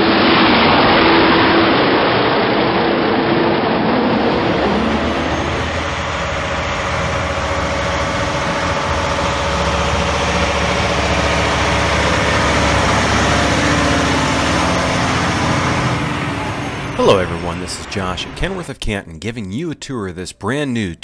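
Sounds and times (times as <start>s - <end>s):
truck diesel engine idling: 4.0s - 18.8s.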